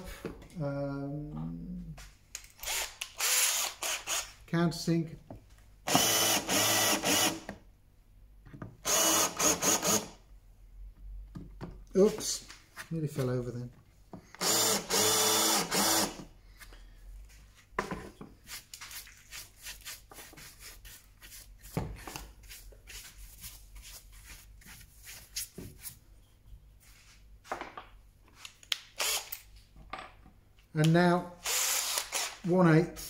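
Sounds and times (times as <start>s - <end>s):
cordless drill whining: 2.6s - 4.3s, 5.9s - 7.5s, 8.8s - 10.1s, 14.4s - 16.3s, 29.0s - 29.3s, 31.4s - 32.4s.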